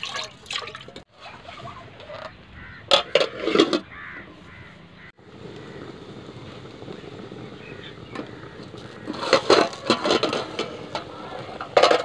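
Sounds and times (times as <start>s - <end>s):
metal lid clanking on pot: 9.0s - 12.0s.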